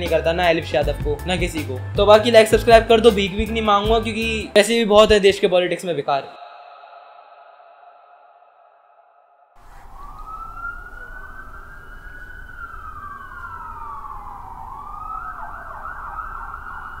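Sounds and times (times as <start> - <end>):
siren wailing: 9.6 - 17.0.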